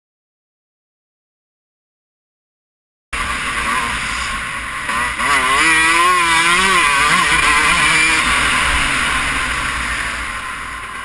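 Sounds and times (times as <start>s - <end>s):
dirt bike engine revving: 3.2s - 10.8s.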